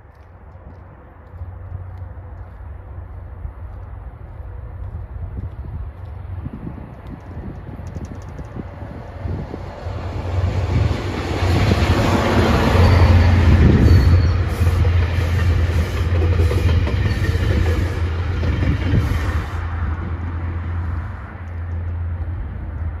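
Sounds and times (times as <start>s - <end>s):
train wheels rolling over rails: 0.0s - 22.9s
diesel locomotive engine hum: 0.0s - 23.0s.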